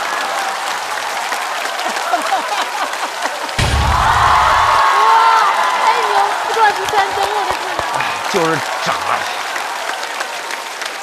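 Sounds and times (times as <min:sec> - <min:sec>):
audience applauding: 0:00.0 - 0:11.0
audience laughing: 0:01.6 - 0:04.8, 0:06.5 - 0:09.6
deep booming sound effect: 0:03.6 - 0:04.9.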